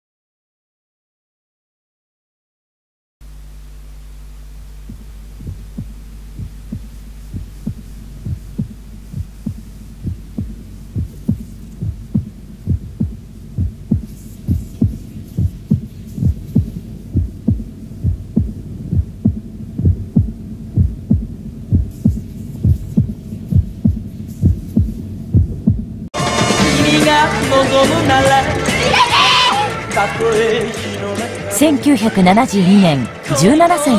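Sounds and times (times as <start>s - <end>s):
low hum: 3.2s - 33.9s
heartbeat thumping: 4.6s - 26.1s
pop song: 26.2s - 33.9s.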